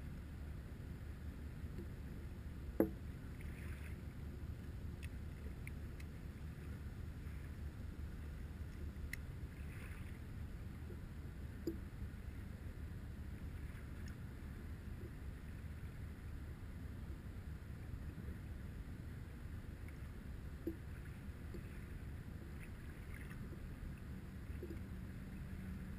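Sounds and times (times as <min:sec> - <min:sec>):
river water lapping: 0:00.0 - 0:16.8, 0:17.5 - 0:25.9
low steady rumble: 0:00.0 - 0:25.9
faint ticks: 0:01.6 - 0:02.0, 0:04.6 - 0:08.0, 0:08.6 - 0:10.2, 0:10.8 - 0:11.9, 0:13.5 - 0:14.3, 0:19.8 - 0:25.5.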